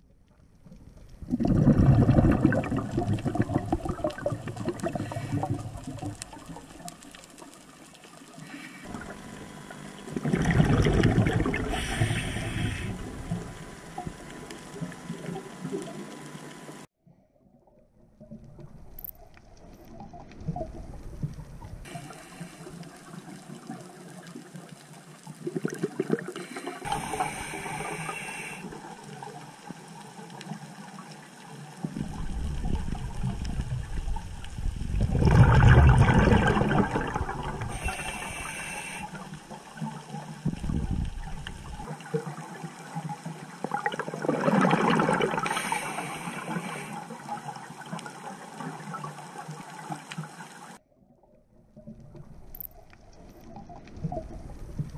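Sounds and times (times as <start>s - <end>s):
regulator exhale bubbling underwater: 1.1s - 6.9s, 8.4s - 15.9s, 25.4s - 29.0s, 31.8s - 50.0s.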